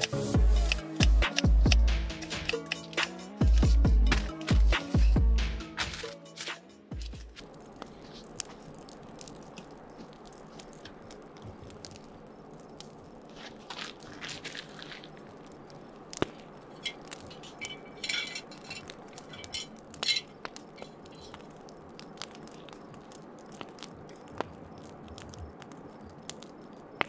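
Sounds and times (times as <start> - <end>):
campfire crackling and popping: 0.0 - 27.0
scuffing and scraping: 13.3 - 15.2.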